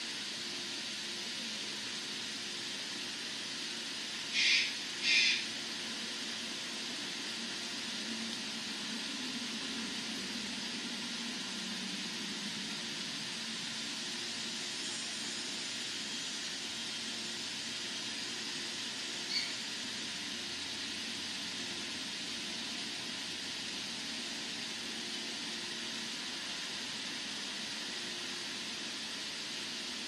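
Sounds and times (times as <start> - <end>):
steady high hiss: 0.0 - 30.0.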